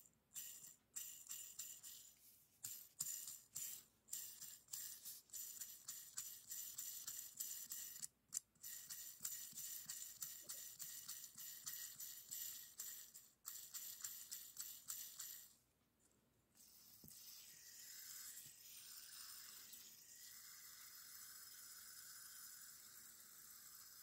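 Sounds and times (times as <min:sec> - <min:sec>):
fidget spinner clicks: 0:00.3 - 0:15.6, 0:17.1 - 0:24.0.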